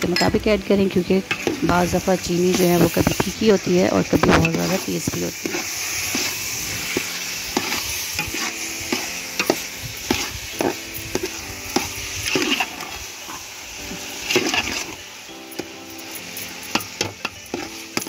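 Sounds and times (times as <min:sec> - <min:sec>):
food sizzling in oil: 0:00.0 - 0:18.0
metal ladle scraping a pot: 0:02.4 - 0:13.4, 0:14.0 - 0:15.0.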